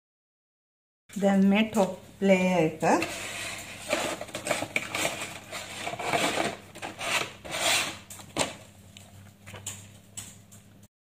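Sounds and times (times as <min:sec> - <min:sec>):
knife scraping dry pasta: 0:03.0 - 0:08.2.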